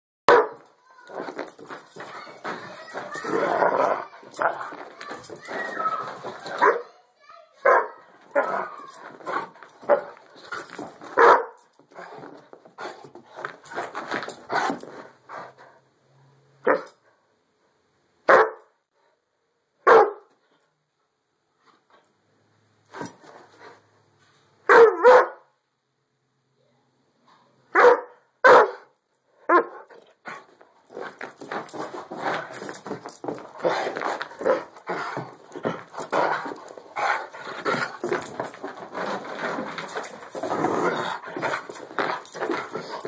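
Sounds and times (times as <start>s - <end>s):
dog barking: 0.3s - 0.6s, 6.6s - 6.9s, 7.6s - 8.7s, 11.2s - 11.6s, 16.6s - 16.9s, 18.3s - 18.7s, 19.8s - 20.3s, 24.7s - 25.5s, 27.7s - 28.9s, 29.5s - 29.9s.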